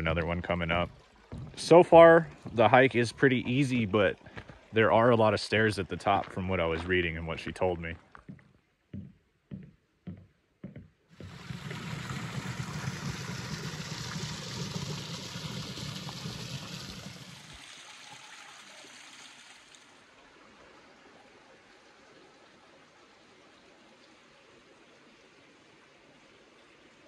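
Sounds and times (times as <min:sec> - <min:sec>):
creek trickling over rocks: 0:00.0 - 0:08.4, 0:11.1 - 0:27.0
footsteps on wooden bridge: 0:00.3 - 0:04.8, 0:05.9 - 0:11.7.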